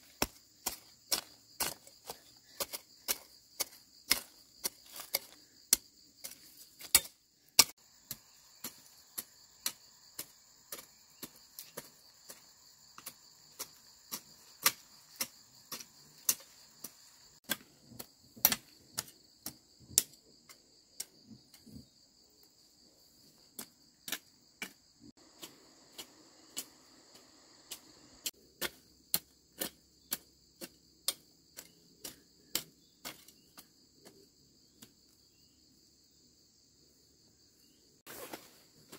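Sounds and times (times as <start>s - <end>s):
high buzz of insects: 0.0s - 17.5s, 21.8s - 30.9s
hoe chopping into soil: 0.0s - 20.2s.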